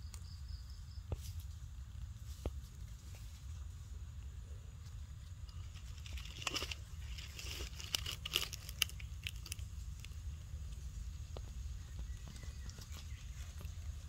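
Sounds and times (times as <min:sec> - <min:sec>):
low steady rumble: 0:00.0 - 0:14.0
dry vine crackling: 0:01.1 - 0:14.0
crisp clicks: 0:05.8 - 0:11.5.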